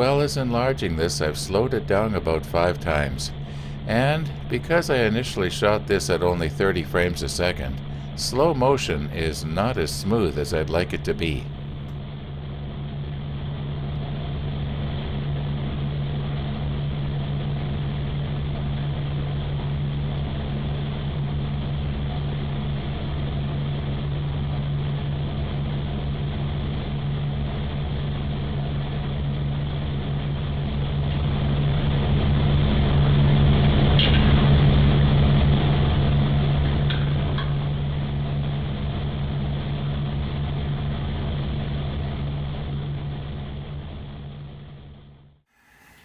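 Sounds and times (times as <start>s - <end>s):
metal lathe deep drone: 0.0s - 44.9s, 45.5s - 46.0s.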